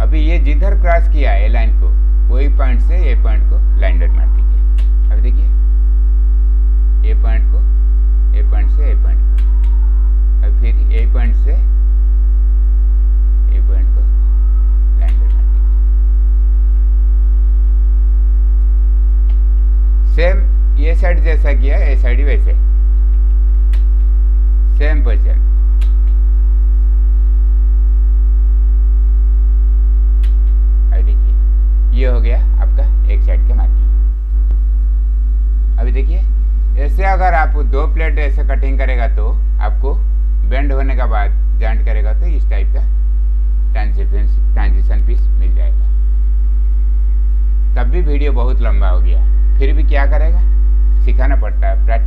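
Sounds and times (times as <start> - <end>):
low voice: 0.0 - 5.6, 7.0 - 7.7, 8.4 - 9.8, 10.4 - 11.7, 13.5 - 14.2, 15.0 - 15.8, 31.9 - 33.9, 47.8 - 52.0
electrical mains hum: 0.0 - 52.0
faint clicks: 4.4 - 5.1, 9.4 - 9.8, 15.0 - 15.6, 19.2 - 19.7, 23.1 - 24.1, 25.8 - 26.2, 30.2 - 30.6.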